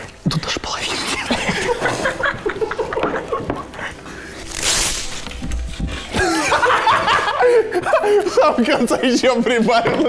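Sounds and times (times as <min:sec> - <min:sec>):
people laughing: 0:01.2 - 0:04.3, 0:06.0 - 0:08.9
adhesive tape peeling: 0:04.4 - 0:05.6
tape ripping: 0:04.4 - 0:05.6.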